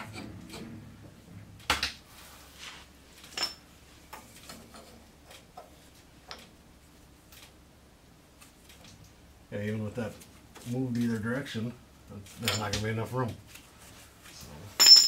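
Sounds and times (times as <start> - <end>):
small metal clinks and knocks: 3.2 - 6.5, 14.8 - 15.0.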